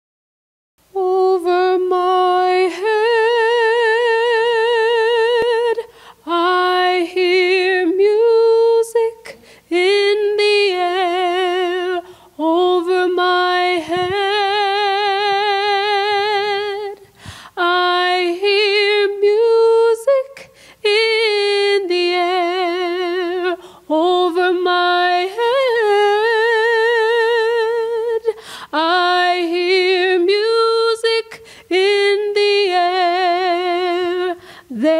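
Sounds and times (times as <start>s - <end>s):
woman singing with vibrato: 0.8s - 34.9s
singer breathing: 5.9s - 6.2s, 9.4s - 9.7s, 12.0s - 12.4s, 17.0s - 17.6s, 20.4s - 20.8s, 23.6s - 23.9s, 28.4s - 28.8s, 31.4s - 31.7s, 34.4s - 34.7s.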